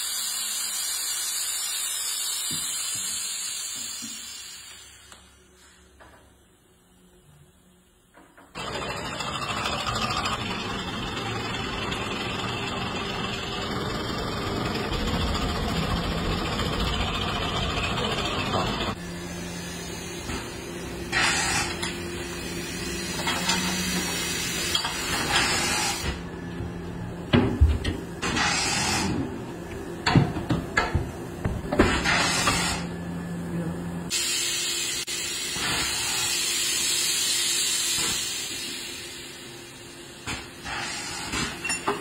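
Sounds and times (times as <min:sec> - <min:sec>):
loud steady pressure hiss: 0:00.0 - 0:05.7, 0:34.1 - 0:39.5.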